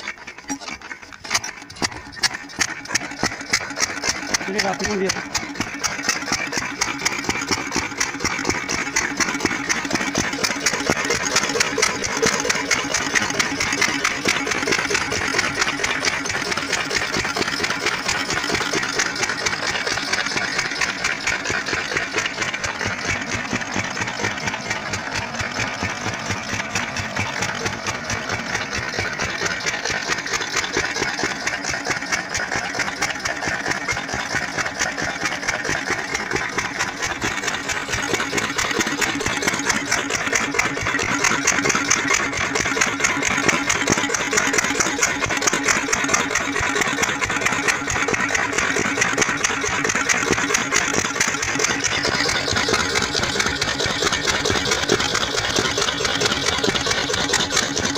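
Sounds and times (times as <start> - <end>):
diesel engine running: 0.0 - 57.9.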